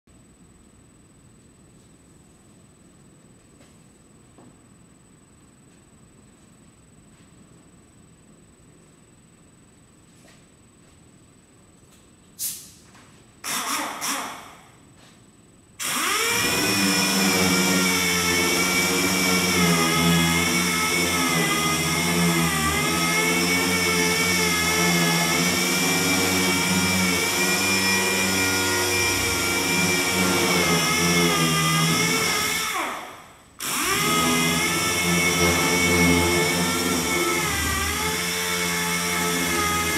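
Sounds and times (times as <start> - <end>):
power tool motor whining: 15.8 - 39.9.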